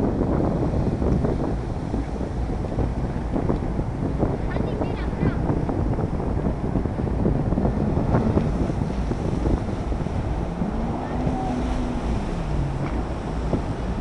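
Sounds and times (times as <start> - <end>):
wind buffeting microphone: 0.0 - 14.0
jet ski engine revving: 5.8 - 14.0.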